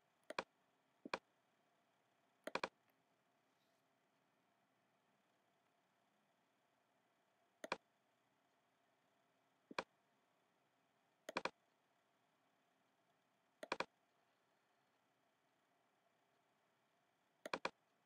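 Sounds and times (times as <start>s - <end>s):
mouse button clicking: 11.3s - 11.5s, 13.6s - 13.9s, 17.4s - 17.8s.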